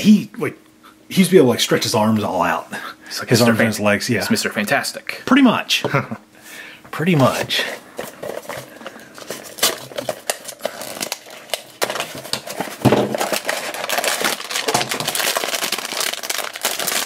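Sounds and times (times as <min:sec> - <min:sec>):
foil bag crinkling: 0:07.2 - 0:17.0.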